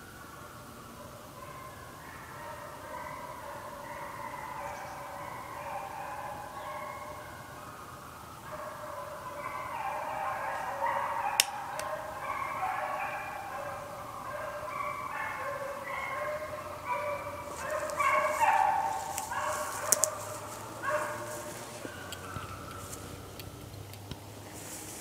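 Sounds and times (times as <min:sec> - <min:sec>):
hounds baying: 0:01.0 - 0:24.9
crackling: 0:17.4 - 0:25.0.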